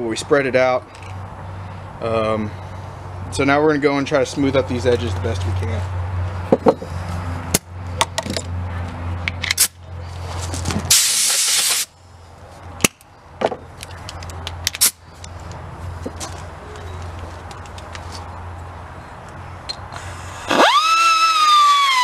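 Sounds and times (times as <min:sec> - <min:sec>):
air blow gun hissing: 0:10.9 - 0:11.9.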